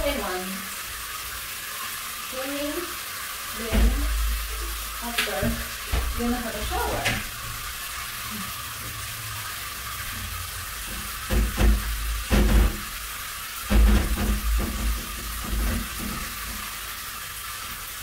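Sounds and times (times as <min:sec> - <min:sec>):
shower spraying on glass: 0:00.0 - 0:18.0.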